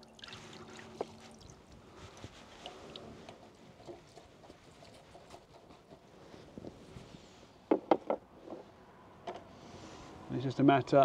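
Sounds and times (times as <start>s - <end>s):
net rustling in water: 0.0s - 6.0s.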